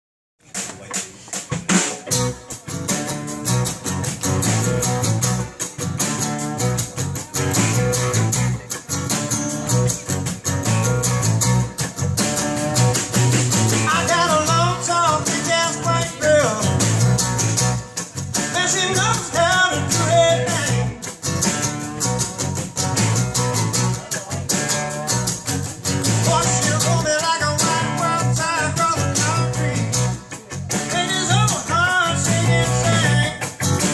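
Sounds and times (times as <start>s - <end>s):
rock band playing: 0.4s - 33.9s
man singing: 13.7s - 21.2s, 26.0s - 33.9s.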